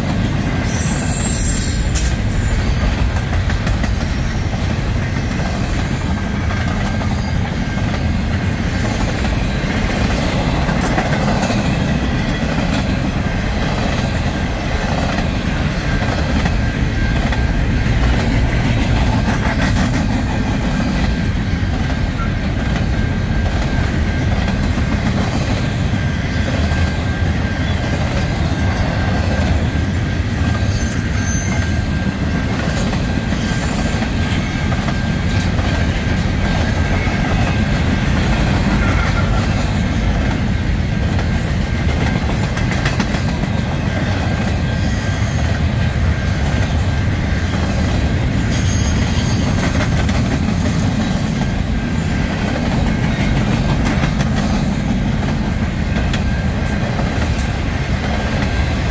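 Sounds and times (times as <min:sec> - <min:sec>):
steel train wheels rumbling on rails: 0:00.0 - 0:58.9
high wheel squeals: 0:00.4 - 0:04.5, 0:29.9 - 0:35.8, 0:41.3 - 0:53.5.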